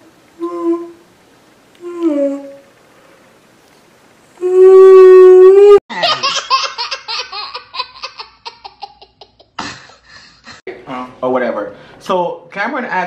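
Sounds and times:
woman holding a vocal note: 0:00.4 - 0:01.0, 0:01.8 - 0:02.7, 0:04.4 - 0:05.8
girl laughing: 0:05.9 - 0:10.6.

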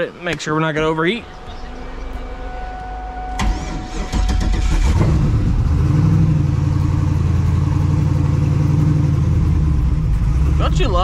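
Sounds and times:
car engine idling: 0:00.1 - 0:11.0
engine starter cranking: 0:03.4 - 0:05.6.

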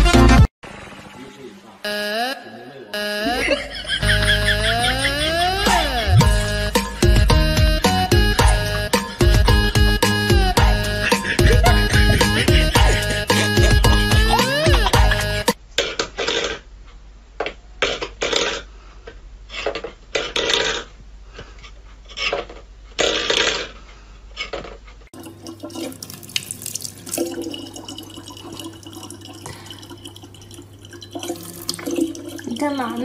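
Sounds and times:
water trickling into plastic bottle: 0:25.2 - 0:33.0.

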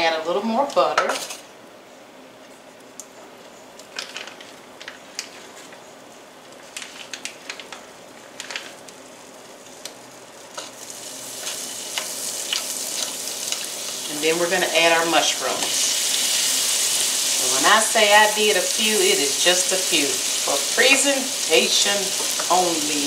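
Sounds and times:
butter sizzling in a skillet: 0:09.2 - 0:23.0.

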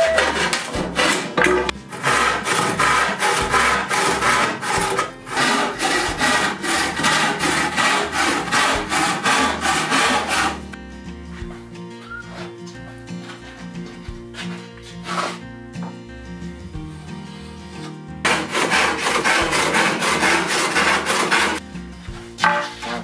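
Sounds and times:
handsaw cutting a board: 0:00.0 - 0:10.7, 0:18.3 - 0:21.6
background music: 0:00.0 - 0:23.0.

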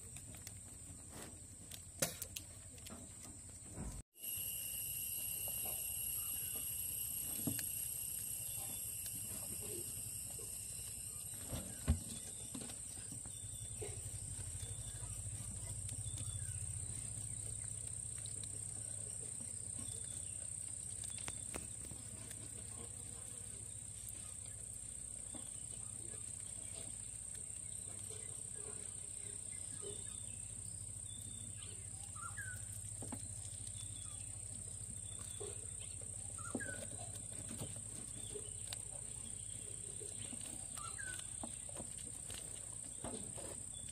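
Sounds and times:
rats gnawing and rustling: 0:00.0 - 0:43.9
low hum: 0:03.8 - 0:22.8.

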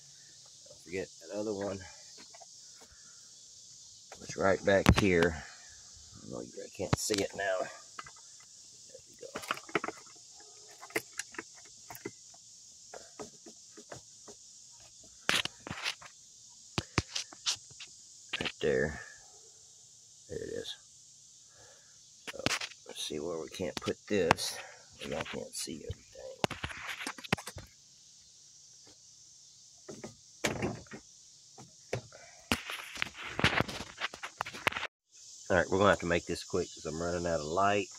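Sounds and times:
crickets chirring: 0:00.0 - 0:37.9
quiet hiss: 0:00.0 - 0:37.9.

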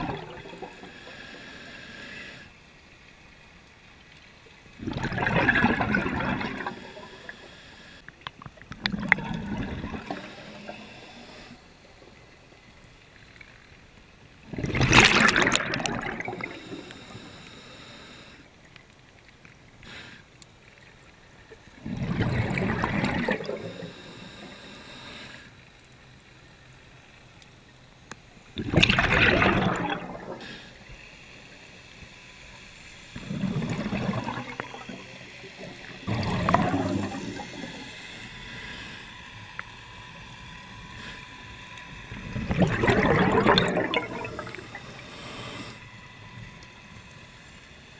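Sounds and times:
underwater bubbles gurgling: 0:00.0 - 0:02.5, 0:04.0 - 0:13.5, 0:14.3 - 0:18.4, 0:21.0 - 0:25.5, 0:28.4 - 0:30.9, 0:32.5 - 0:47.9.

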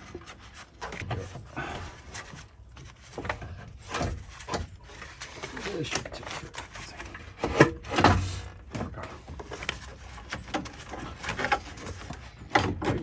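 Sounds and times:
engine parts knocking and scraping: 0:00.0 - 0:13.0.

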